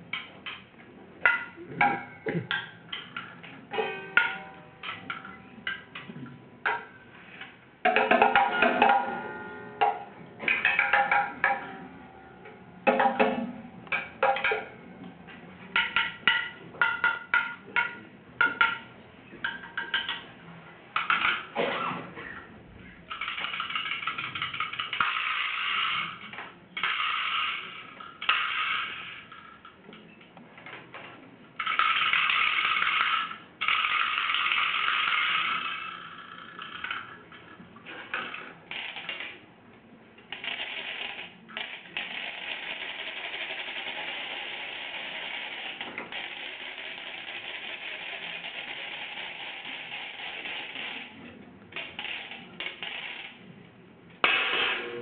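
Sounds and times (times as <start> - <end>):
coat hangers clattering on metal rails: 23.1 - 29.7.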